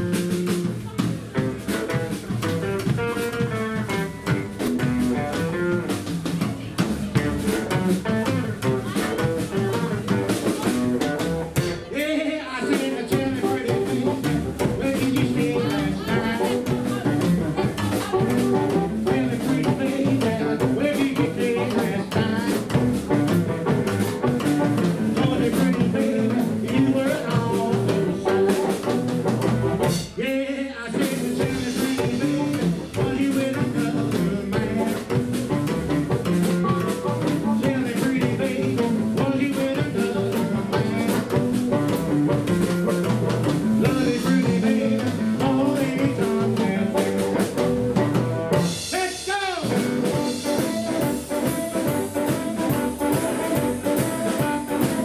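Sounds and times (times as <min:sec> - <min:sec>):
blues band playing live: 0:00.0 - 0:55.0
man singing: 0:07.2 - 0:29.1, 0:29.8 - 0:42.6, 0:43.5 - 0:55.0
harmonica: 0:50.1 - 0:55.0.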